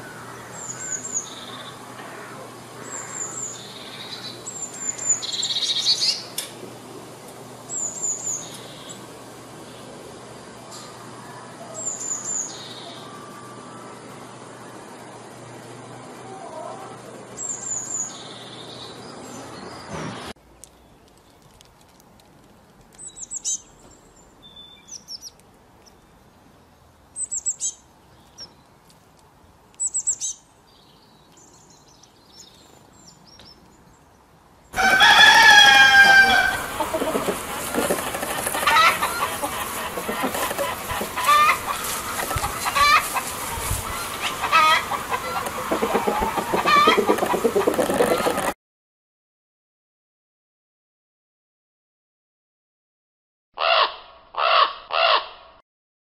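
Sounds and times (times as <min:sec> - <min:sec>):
bird singing high song: 0:00.0 - 0:01.9, 0:02.8 - 0:06.4, 0:07.6 - 0:10.0, 0:10.7 - 0:15.2, 0:17.3 - 0:21.4, 0:23.0 - 0:28.8, 0:29.8 - 0:34.3
chicken long drawn-out call: 0:16.1 - 0:17.2, 0:34.8 - 0:48.5, 0:53.6 - 0:55.3
rooster: 0:16.2 - 0:17.0, 0:34.8 - 0:48.5
hens clucking: 0:16.2 - 0:17.2, 0:34.8 - 0:48.6.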